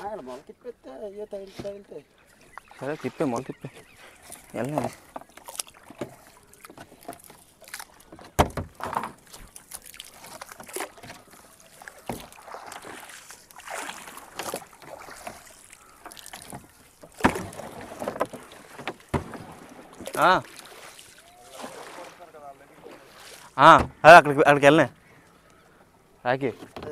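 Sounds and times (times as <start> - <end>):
water splashing: 0.0 - 26.9
pole knocking against boat hull: 8.1 - 9.2.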